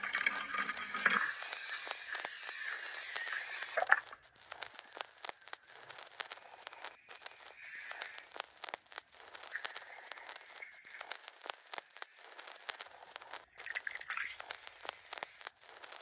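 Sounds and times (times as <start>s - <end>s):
soda bubbles fizzing: 0.0s - 4.1s, 9.5s - 11.0s, 13.4s - 15.5s.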